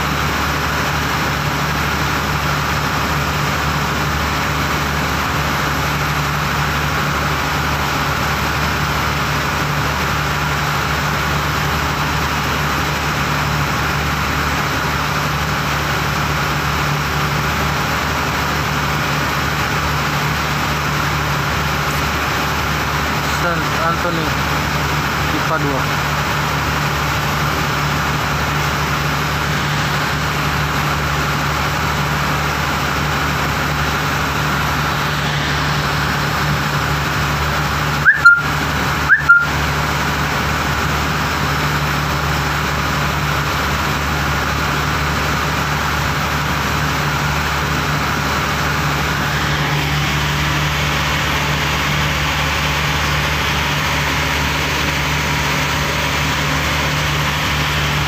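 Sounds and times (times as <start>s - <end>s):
boat engine droning: 0.0s - 58.0s
loud rising chirps: 38.0s - 39.6s.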